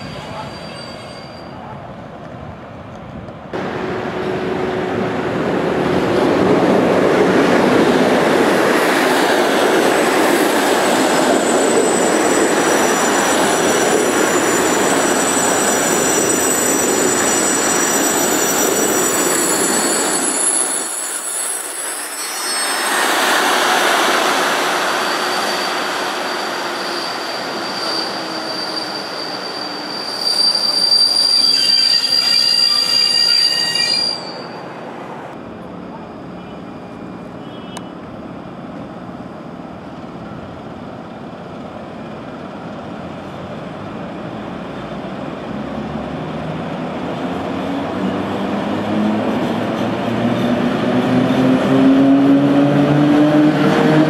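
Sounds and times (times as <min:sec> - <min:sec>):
train coaches squealing on track: 0:00.0 - 0:02.0, 0:07.4 - 0:34.9, 0:35.6 - 0:38.1.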